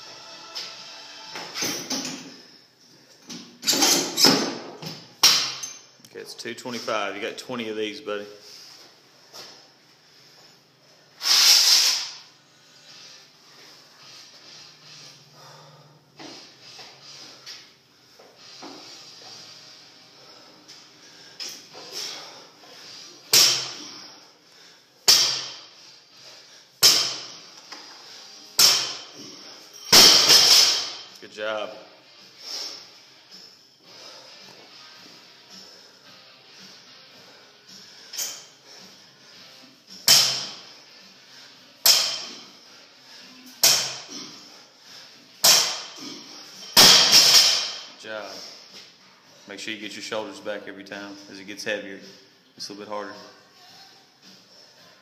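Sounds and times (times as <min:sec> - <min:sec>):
barbell impacts with metal clank: 0:23.3 - 0:23.8, 0:25.1 - 0:25.6, 0:26.8 - 0:27.4, 0:28.6 - 0:29.1, 0:29.9 - 0:31.1, 0:40.1 - 0:40.6, 0:41.8 - 0:42.3, 0:43.6 - 0:44.1, 0:45.4 - 0:45.9, 0:46.7 - 0:47.9.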